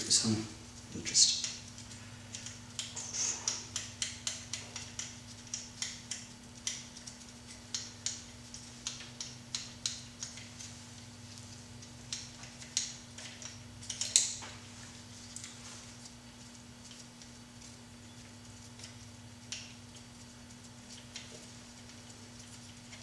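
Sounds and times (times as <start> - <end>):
hand ratchet clicking: 2.3 - 7.1.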